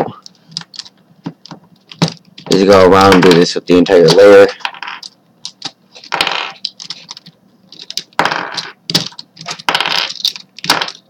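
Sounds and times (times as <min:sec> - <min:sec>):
plastic pieces clattering on desk: 0:04.1 - 0:11.0.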